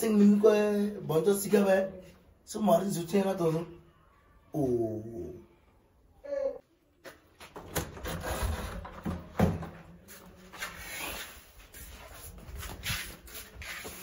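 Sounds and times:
rubbing and rustling: 0:10.0 - 0:14.0.

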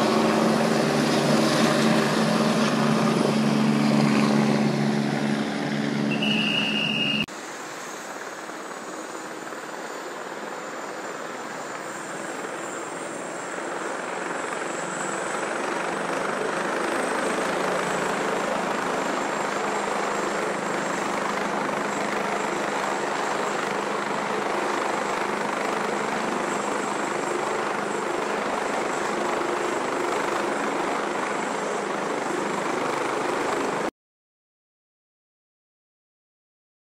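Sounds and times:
helicopter flying overhead: 0:00.0 - 0:33.9
helicopter turbines running: 0:00.0 - 0:33.9.

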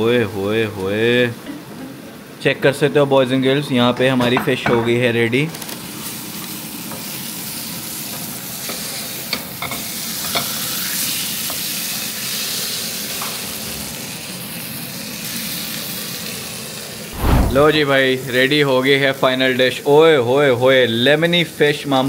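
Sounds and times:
meat sizzling in a frying pan: 0:05.5 - 0:17.1, 0:18.3 - 0:22.0.

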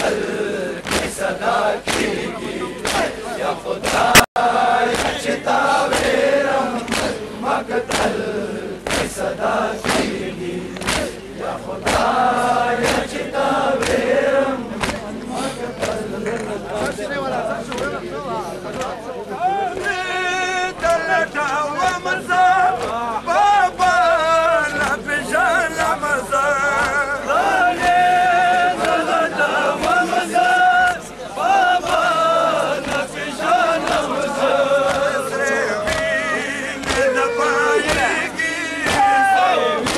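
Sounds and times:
men chanting in unison: 0:00.0 - 0:39.9
chest-beating slaps: 0:00.8 - 0:01.2, 0:02.8 - 0:03.2, 0:03.8 - 0:04.3, 0:06.8 - 0:07.2, 0:10.7 - 0:11.2, 0:36.8 - 0:37.1.

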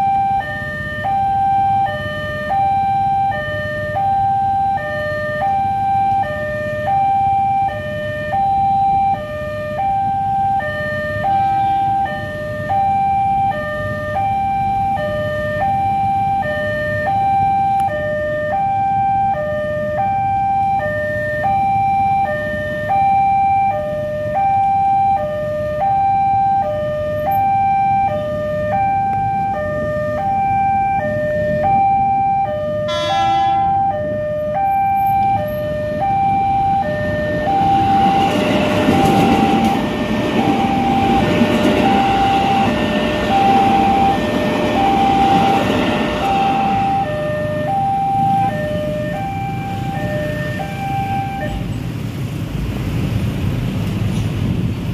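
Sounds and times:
level crossing alarm two-tone: 0:00.0 - 0:51.6
train horn: 0:11.2 - 0:12.2, 0:32.8 - 0:34.0, 0:38.1 - 0:47.4.

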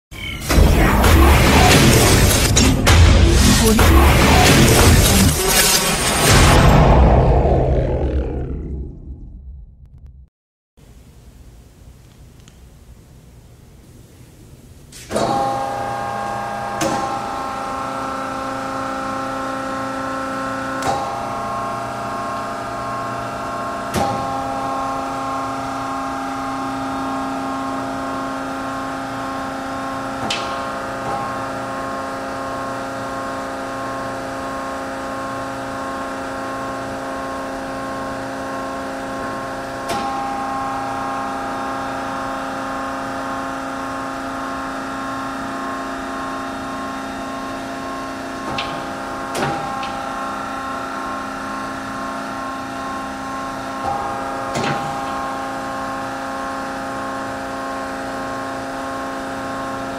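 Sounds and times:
band saw motor hum: 0:00.3 - 0:09.0.

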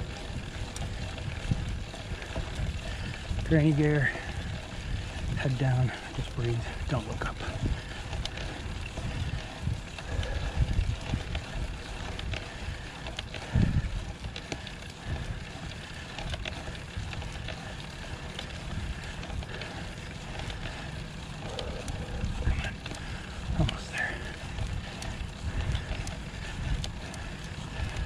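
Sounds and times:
gusty wind on microphone: 0:00.0 - 0:03.6, 0:06.8 - 0:12.3, 0:13.4 - 0:14.0
road bike riding noise: 0:00.0 - 0:28.0.

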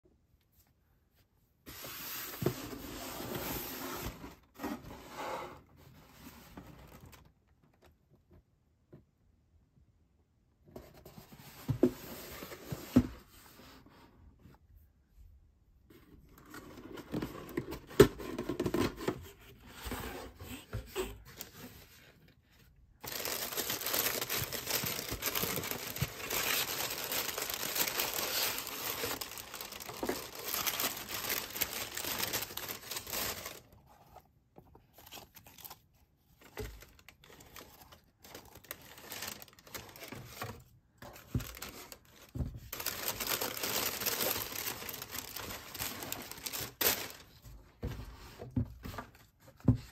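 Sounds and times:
soft handling sounds: 0:10.6 - 0:49.9
tissue paper crinkling: 0:23.0 - 0:33.8, 0:36.8 - 0:40.6, 0:41.2 - 0:47.4.

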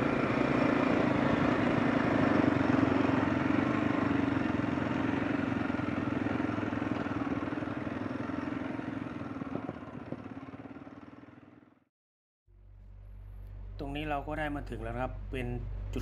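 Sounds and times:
dirt bike engine running: 0:00.0 - 0:11.9.

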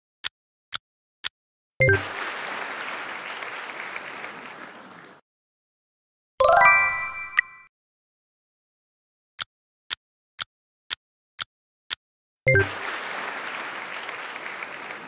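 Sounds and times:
countdown timer tick: 0:01.8 - 0:02.0, 0:06.5 - 0:07.7
applause: 0:01.8 - 0:05.2, 0:12.5 - 0:15.0.

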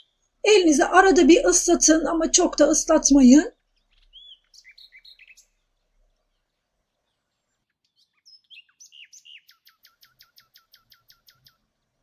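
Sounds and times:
faint bird chirping: 0:02.9 - 0:11.7.

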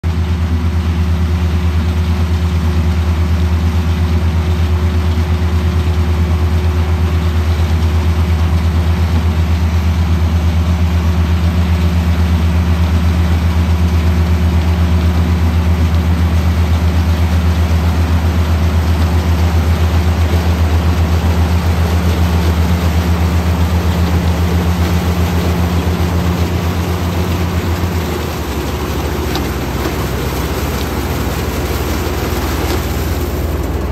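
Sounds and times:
diesel engines humming under load: 0:00.0 - 0:33.9
harvester chopping and blowing cane: 0:11.7 - 0:33.9.

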